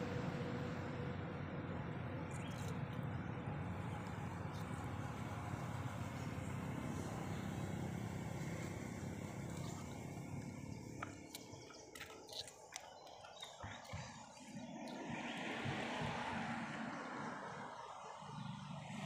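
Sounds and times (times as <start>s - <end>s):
passing motor vehicle rumble: 0.0s - 11.8s
monkey chewing cucumber: 9.3s - 15.7s.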